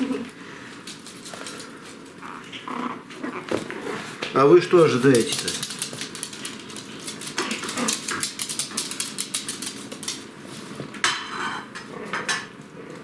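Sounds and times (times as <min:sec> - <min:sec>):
dog claws clicking on floor: 0:00.7 - 0:02.2, 0:04.8 - 0:10.3.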